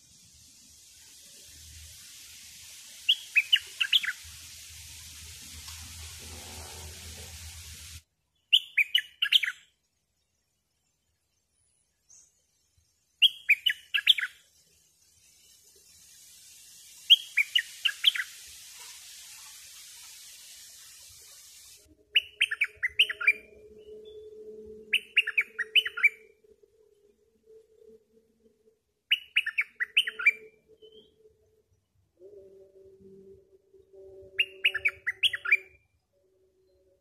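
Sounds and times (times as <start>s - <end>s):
steady hiss: 0.0s - 8.1s, 11.8s - 22.6s
bird singing quick notes: 8.5s - 9.6s, 22.1s - 24.2s.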